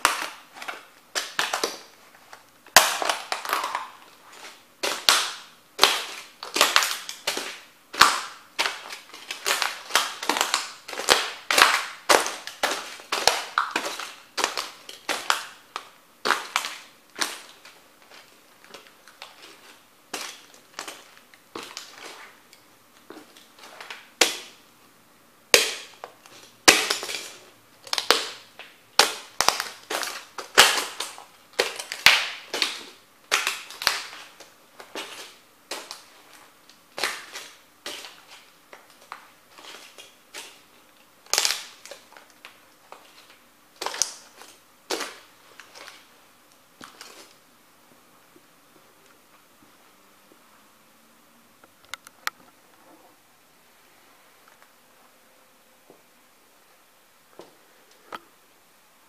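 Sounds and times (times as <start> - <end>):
stomping crushing plastic pieces: 0.0 - 24.6, 25.5 - 46.1, 46.7 - 47.4.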